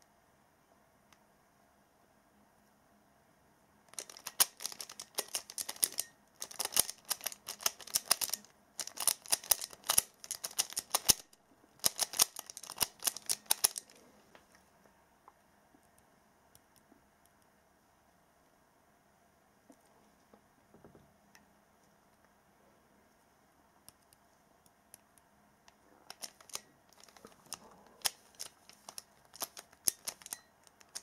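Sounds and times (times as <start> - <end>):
plastic puzzle clicking and rattling: 3.9 - 14.0, 26.1 - 31.0.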